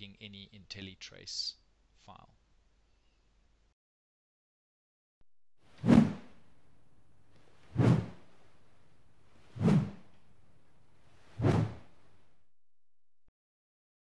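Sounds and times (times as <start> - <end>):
faint background hiss: 5.7 - 12.3.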